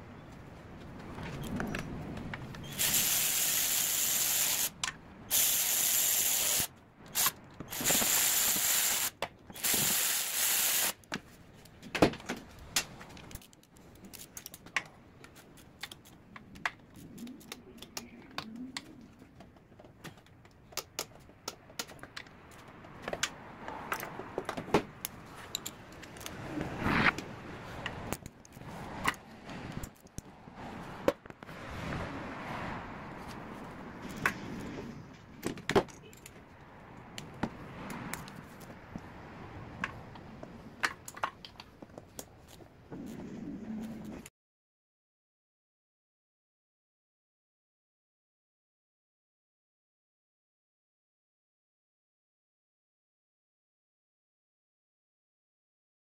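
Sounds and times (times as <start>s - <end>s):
pressurised spray hissing: 2.6s - 11.0s.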